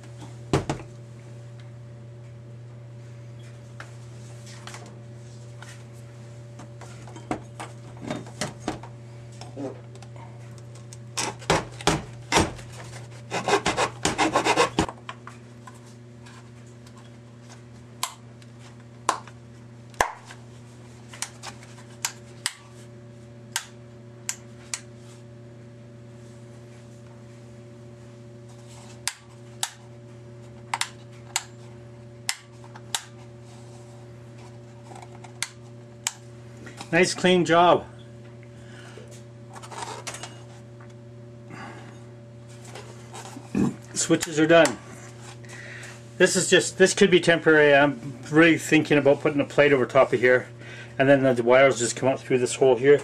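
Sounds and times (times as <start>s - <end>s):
electrical hum: 0.0s - 53.0s
file rasping on plastic: 13.2s - 14.9s.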